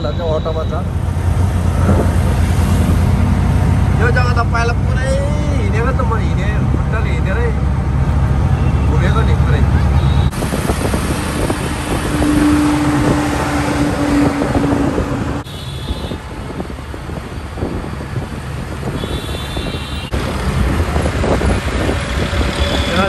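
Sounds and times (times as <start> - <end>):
passing vehicles: 0.0 - 23.0
wind on microphone: 10.3 - 23.0.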